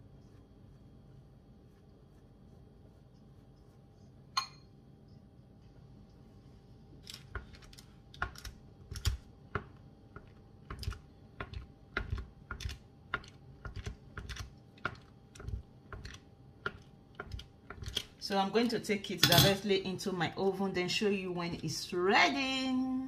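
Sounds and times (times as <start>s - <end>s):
fork tapping pie crusts: 7.2s - 18.1s.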